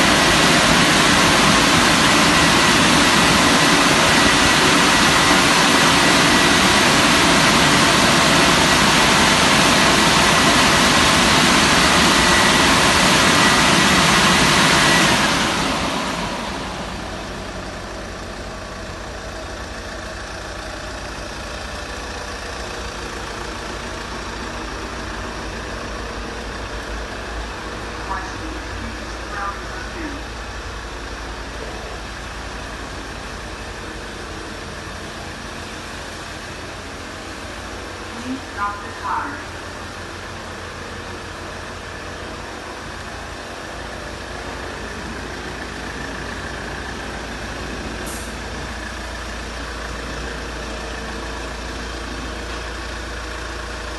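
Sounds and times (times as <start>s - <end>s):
car wash machine rushing: 0.0s - 53.9s.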